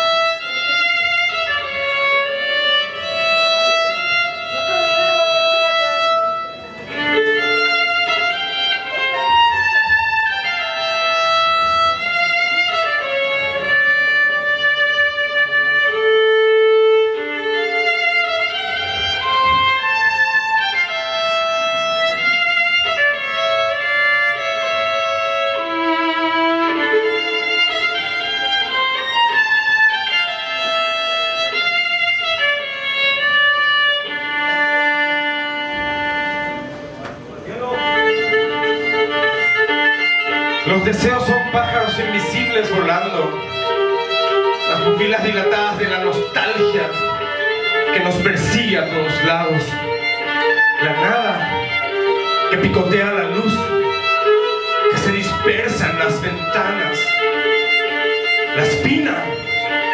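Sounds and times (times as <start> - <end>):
violin playing: 0.0 - 59.9.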